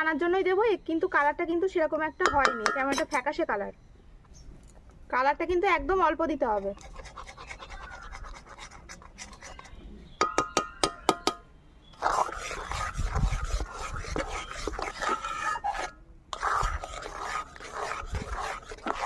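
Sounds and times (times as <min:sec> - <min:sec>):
metal ladle scraping a pan: 0:12.0 - 0:19.0.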